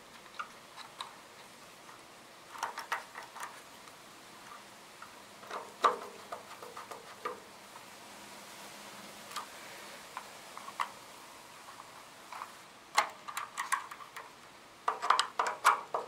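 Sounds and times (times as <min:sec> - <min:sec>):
screwdriver clicks and taps: 0:13.0 - 0:16.0.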